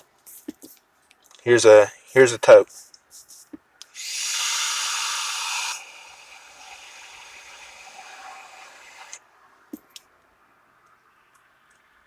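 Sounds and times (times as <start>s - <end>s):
vape hiss and sizzling: 3.9s - 9.2s.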